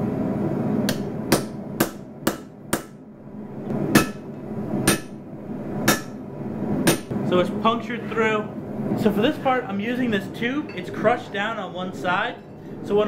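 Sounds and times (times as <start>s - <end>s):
hammer striking steel punch: 0.9s - 3.0s, 3.9s - 5.2s, 5.8s - 6.2s, 6.8s - 7.1s.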